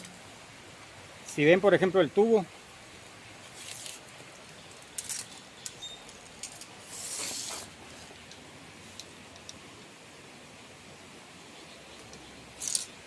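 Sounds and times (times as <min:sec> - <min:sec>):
scrape: 0:06.8 - 0:08.1.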